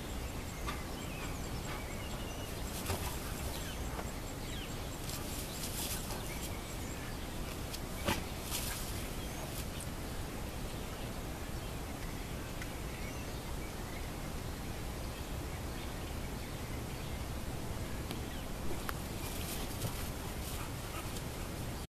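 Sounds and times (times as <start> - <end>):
outdoor background noise: 0.0 - 21.9.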